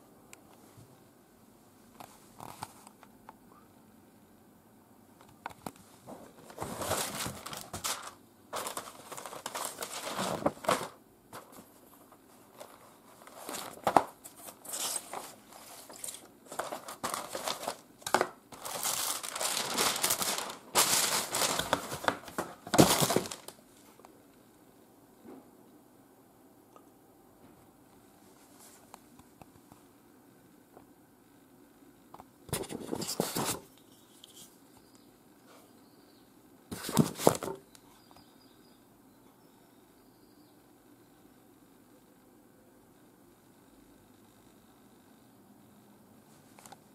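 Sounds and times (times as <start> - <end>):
paper and cardboard crinkling: 6.1 - 23.6, 32.5 - 33.6, 36.7 - 37.6.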